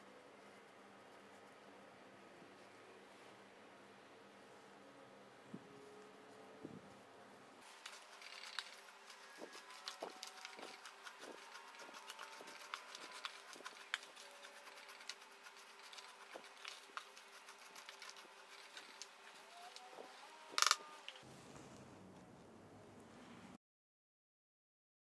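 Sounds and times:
oats rustling in metal tray: 7.6 - 19.4.

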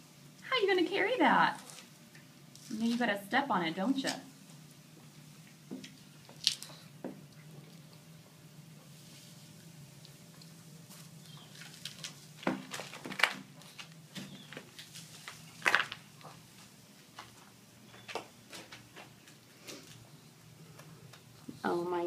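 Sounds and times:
faint low hum: 0.0 - 22.0.

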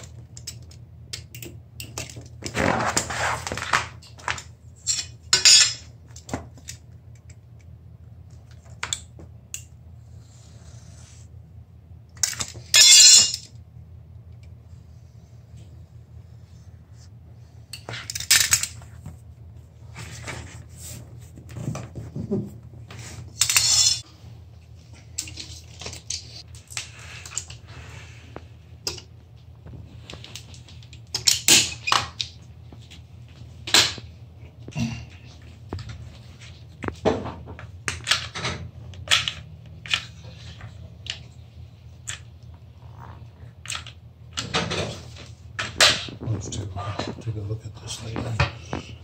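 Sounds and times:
steady low hum: 0.0 - 49.0
pieces shifted on floor: 2.0 - 5.8
knife cutting vinyl strip: 2.4 - 4.0.

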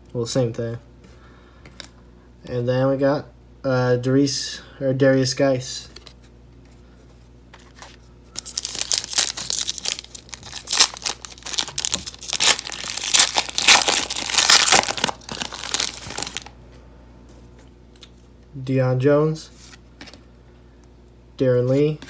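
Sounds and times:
foil wrapper crinkling: 7.6 - 16.5.

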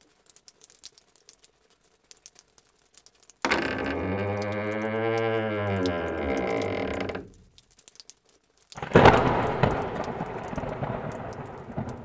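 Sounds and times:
rain: 0.0 - 12.0
thunder clap: 8.8 - 12.0.

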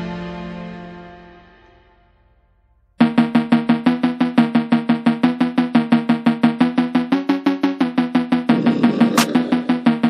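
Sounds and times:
pulsing repeated note music: 3.0 - 10.0.

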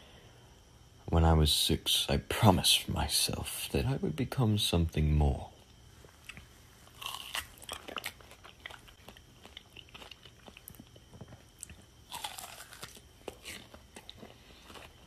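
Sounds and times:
chewing apple crunches: 6.0 - 15.0.

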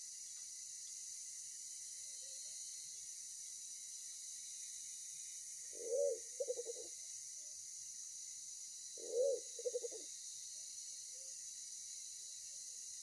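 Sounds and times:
pigeon cooing: 5.8 - 6.9, 9.0 - 10.0.

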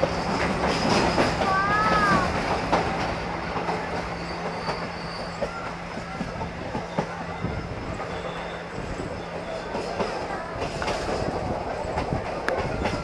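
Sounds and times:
train rumbling on rails: 0.0 - 13.0
wheels clicking over rail joints: 0.0 - 13.0
faint wheel squeal: 3.4 - 10.4.

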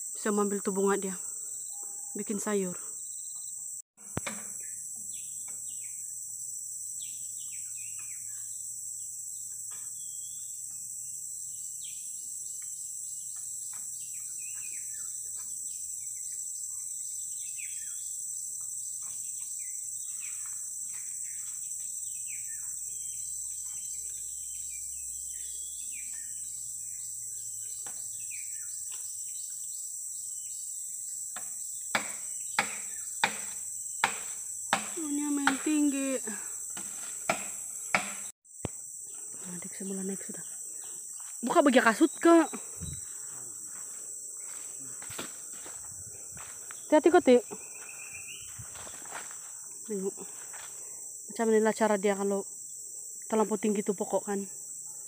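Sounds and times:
high-pitched insect chorus: 0.0 - 55.0
sharp knocks: 4.0 - 4.6, 31.4 - 35.7, 36.8 - 38.3.

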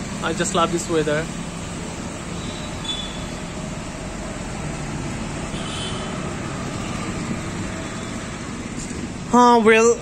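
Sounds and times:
street traffic rumble: 0.0 - 10.0.

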